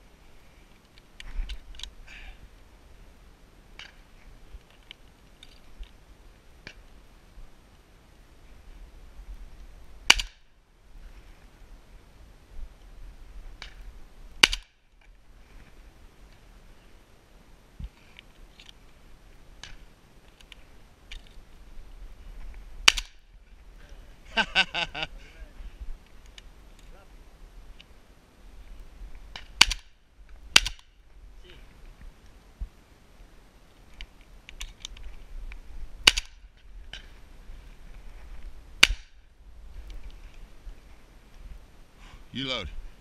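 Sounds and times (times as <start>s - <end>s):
rustling: 0.0s - 43.0s
shotgun shot: 10.1s - 10.4s.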